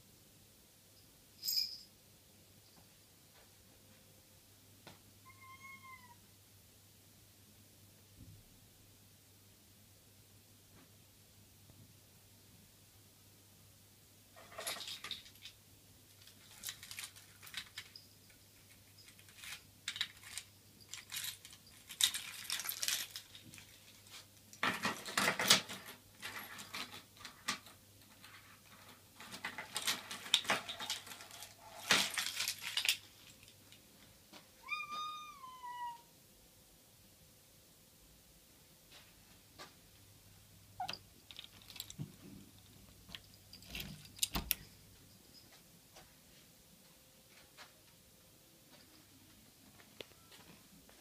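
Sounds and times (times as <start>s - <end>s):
cat meowing: 5.2s - 6.2s, 34.6s - 36.1s.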